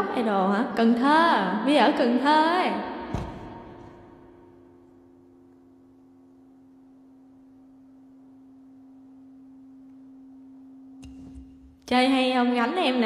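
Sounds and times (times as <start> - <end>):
higher pure tone: 3.6 - 13.0
faint steady pure tone: 3.7 - 13.0.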